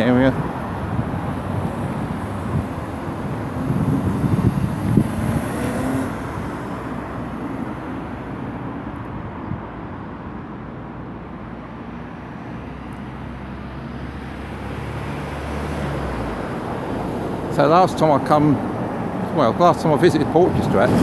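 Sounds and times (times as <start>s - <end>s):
car passing close by: 0.0s - 8.6s, 12.4s - 19.2s, 20.1s - 21.0s
traffic hum: 0.0s - 21.0s.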